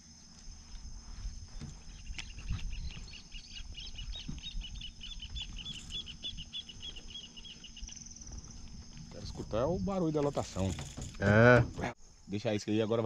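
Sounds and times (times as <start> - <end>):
high background whine: 0.0 - 12.0
bird chirping: 1.5 - 9.2.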